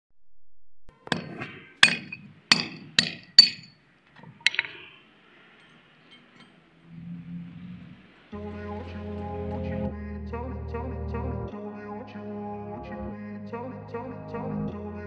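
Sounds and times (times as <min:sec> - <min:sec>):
hammer striking steel: 0:01.0 - 0:03.8.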